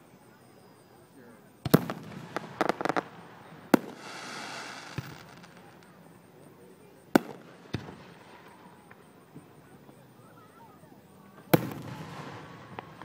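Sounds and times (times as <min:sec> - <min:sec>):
fireworks bang: 0:01.6 - 0:05.9, 0:11.5 - 0:13.0
fireworks popping: 0:01.6 - 0:06.2, 0:07.1 - 0:09.5, 0:11.4 - 0:13.0
hissing crackle of fireworks: 0:01.6 - 0:13.0.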